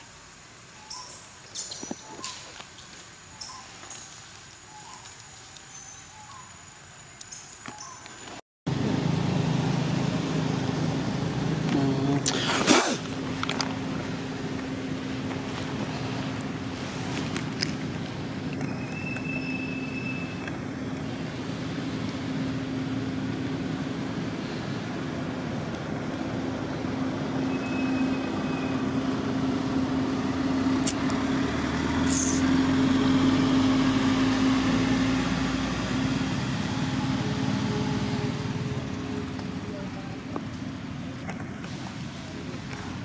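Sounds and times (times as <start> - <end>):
vehicle engine droning: 8.7 - 43.0.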